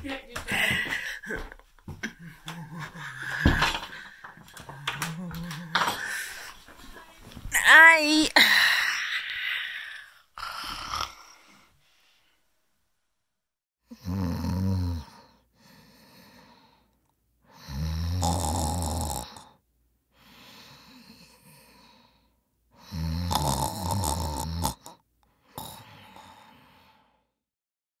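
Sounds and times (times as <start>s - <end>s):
person snoring: 1.1s - 6.6s, 7.7s - 11.8s, 13.9s - 16.8s, 17.5s - 19.6s, 22.8s - 27.3s
quiet breaths out: 19.3s - 22.9s, 24.9s - 27.4s.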